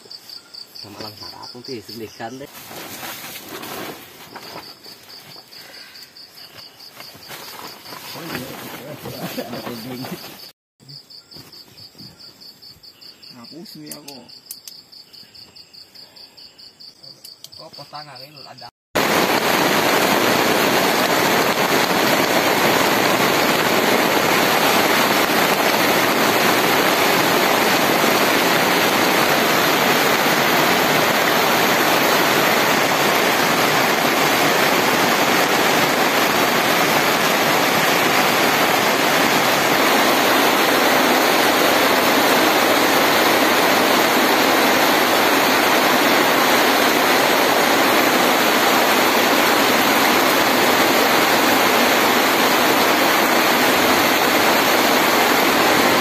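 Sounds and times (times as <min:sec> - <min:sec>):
heavy rain pouring: 0:08.1 - 0:10.2, 0:19.0 - 0:56.0.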